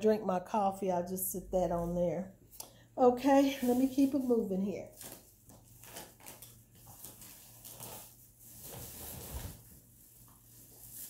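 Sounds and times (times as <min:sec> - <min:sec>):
faint rustling handling noises: 0:03.2 - 0:11.0.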